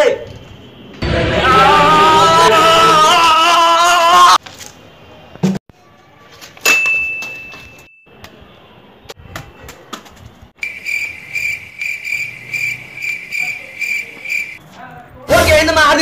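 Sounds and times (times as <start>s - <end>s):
cricket chirping sound effect: 10.6s - 14.6s.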